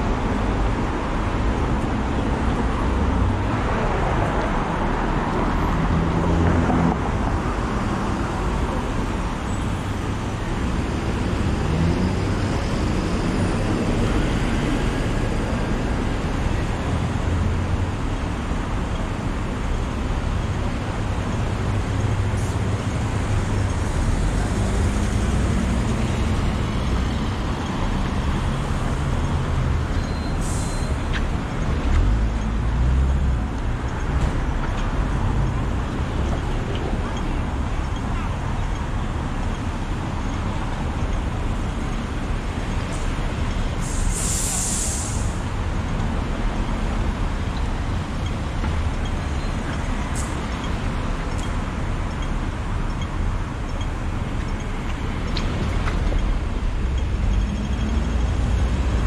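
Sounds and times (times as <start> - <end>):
vehicles passing on road: 0.0 - 59.0
short high hiss: 43.8 - 45.4.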